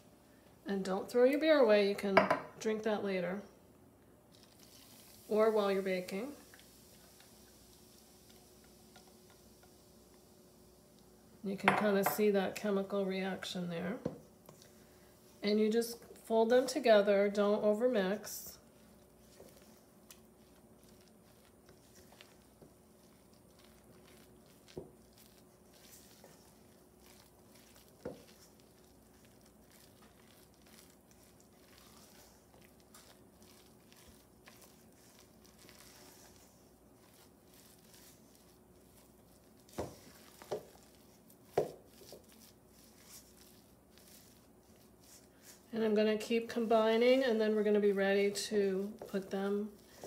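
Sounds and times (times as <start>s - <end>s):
dough scraping in a bowl: 15.2s - 50.0s.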